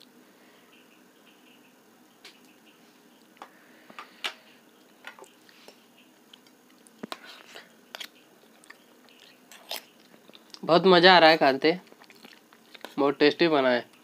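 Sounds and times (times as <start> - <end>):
eating sounds: 4.7 - 10.7, 11.8 - 13.0.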